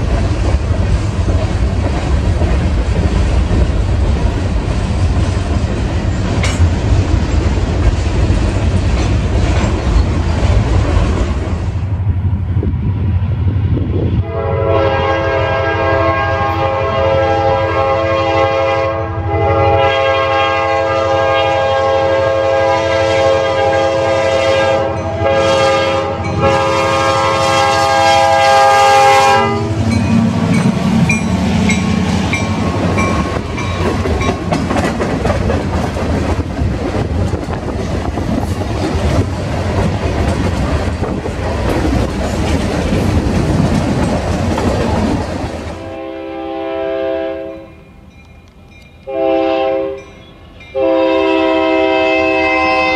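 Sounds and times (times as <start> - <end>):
train wheels clattering on rails: 0.0 - 11.8, 29.8 - 45.9
locomotive air horn chord: 14.2 - 30.0, 45.8 - 47.8, 49.1 - 52.9
locomotive engine: 26.1 - 46.0.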